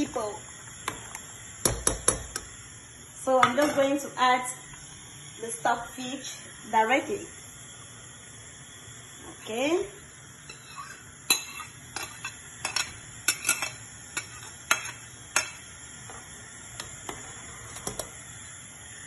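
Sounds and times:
spoon clinking on ceramic plate: 10.5 - 15.6.

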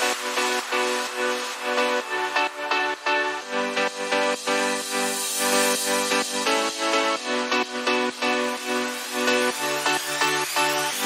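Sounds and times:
steady electronic beat: 0.0 - 11.0
synth chords: 0.0 - 11.0.

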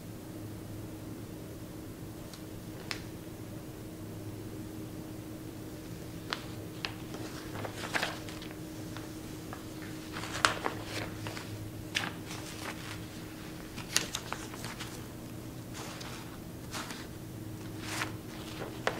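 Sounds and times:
parchment rustling: 5.8 - 18.9.

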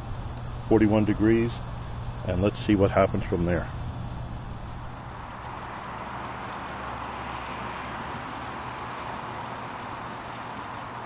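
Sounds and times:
low hum: 0.0 - 11.0
stove flame roaring: 3.8 - 11.0.

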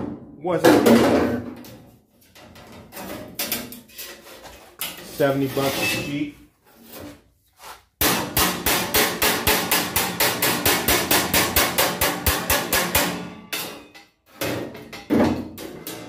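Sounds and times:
hammer tapping steel sheet: 8.0 - 14.1.

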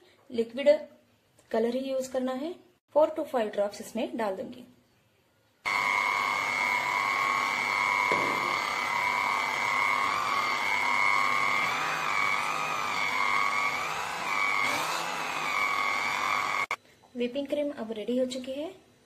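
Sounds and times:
hand blender motor whine: 5.7 - 16.8.

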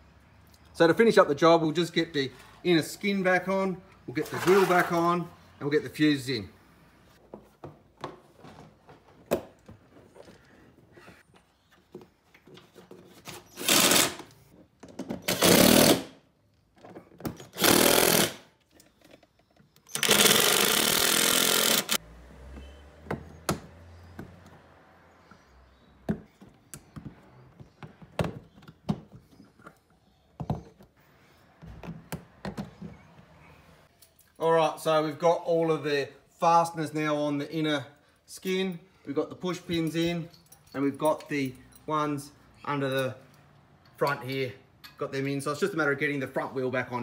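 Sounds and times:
impact driver running: 13.6 - 14.2, 17.6 - 18.4, 19.9 - 22.0.

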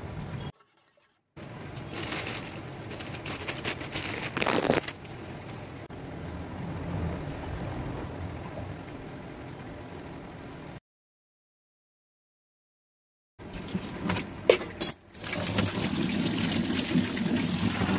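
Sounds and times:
water boiling in pot: 15.1 - 17.9.

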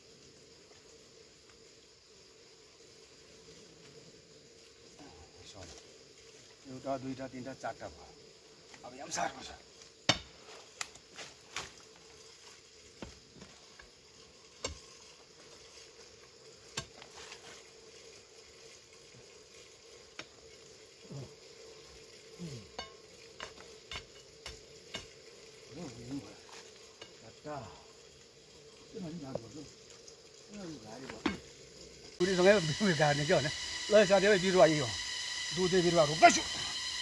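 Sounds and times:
digging tool scraping soil: 16.7 - 17.7
faint drone: 32.2 - 37.0.

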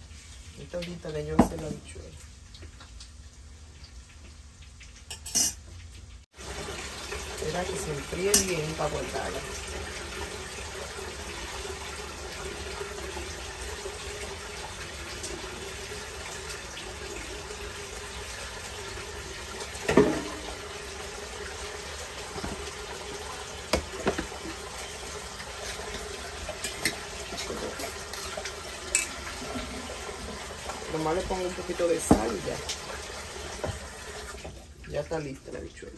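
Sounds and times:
metal kitchenware clinking: 5.1 - 5.6, 28.9 - 29.2.

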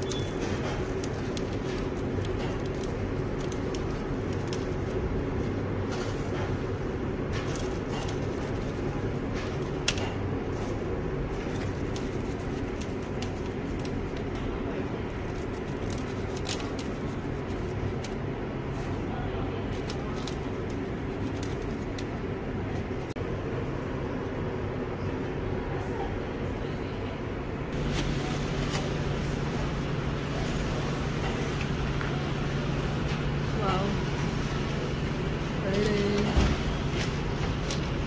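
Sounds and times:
cereal pieces ticking onto paper: 0.0 - 5.0, 11.4 - 18.1
kitchen equipment humming: 0.0 - 25.9, 27.7 - 38.0.

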